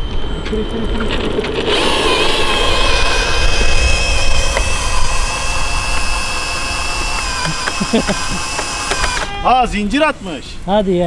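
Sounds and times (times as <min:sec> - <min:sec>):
low rumble: 0:00.0 - 0:07.4
cordless drill motor whining: 0:01.2 - 0:09.4.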